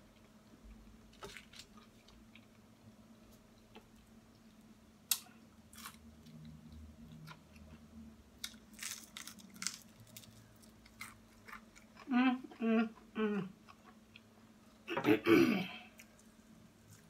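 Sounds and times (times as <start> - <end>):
crunchy fried chicken chewing: 8.4 - 12.1.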